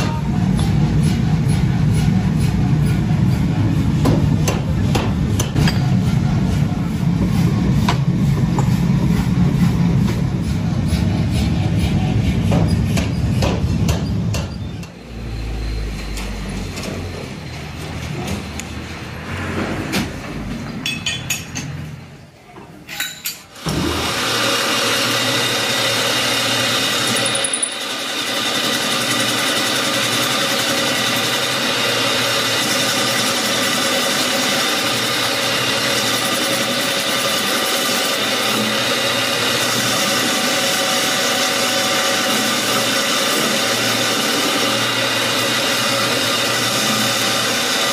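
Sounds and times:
metal lathe drone: 0.0s - 13.2s, 23.7s - 47.9s
machine rumbling: 0.0s - 22.0s
metallic knocks and clinks: 20.8s - 21.8s.

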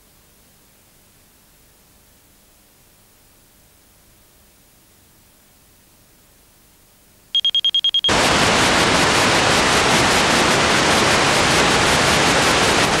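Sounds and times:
short high-pitched beeps: 7.4s - 8.1s.

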